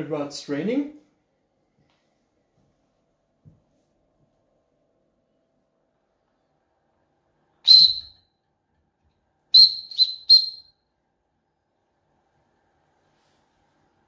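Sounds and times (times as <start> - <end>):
small steam whistle toots: 7.7 - 8.2, 9.6 - 10.7.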